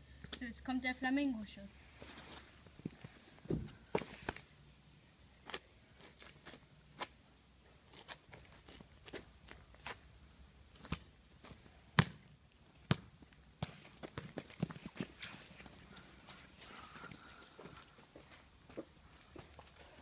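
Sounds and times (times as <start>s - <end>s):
football kicked and bouncing: 12.0s - 14.8s.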